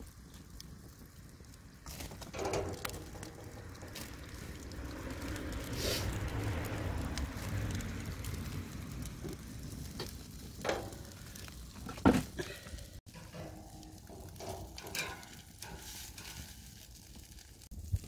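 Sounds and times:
fish sizzling on a grill: 0.0s - 18.0s
metal tongs tapping grate: 2.2s - 4.1s, 10.6s - 11.1s, 13.1s - 16.7s.

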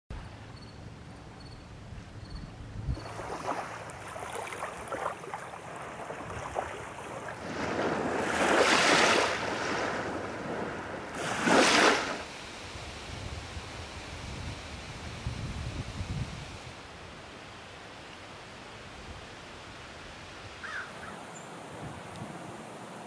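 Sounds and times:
small waves lapping on shore: 3.0s - 23.0s.

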